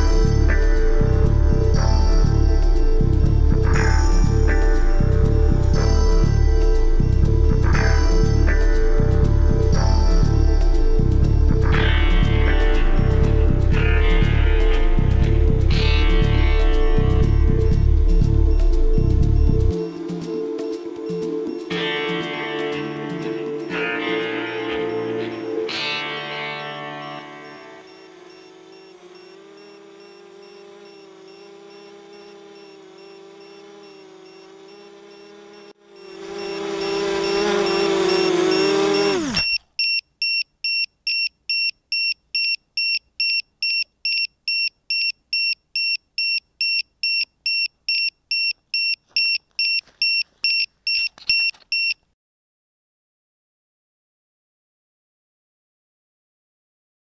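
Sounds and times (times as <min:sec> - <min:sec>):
held musical chord: 0:19.7 - 0:39.1
short high beeps: 0:24.8 - 0:52.0
quadcopter motors whirring: 0:26.6 - 0:39.6.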